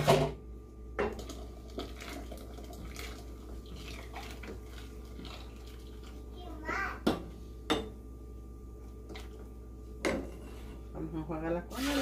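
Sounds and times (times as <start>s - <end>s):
thick liquid pouring into pot: 1.2s - 6.2s.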